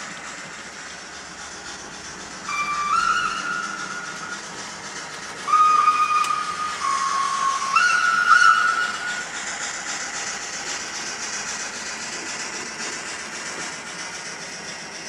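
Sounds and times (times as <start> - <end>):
steam hiss: 0.0 - 15.0
steam whistle blast: 2.5 - 4.5, 5.4 - 9.3.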